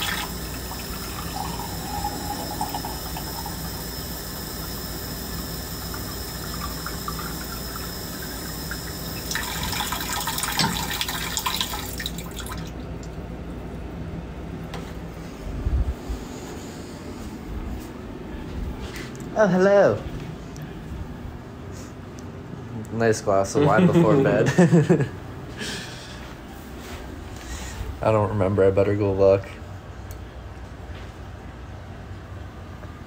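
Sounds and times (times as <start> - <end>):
running water: 0.0 - 13.1.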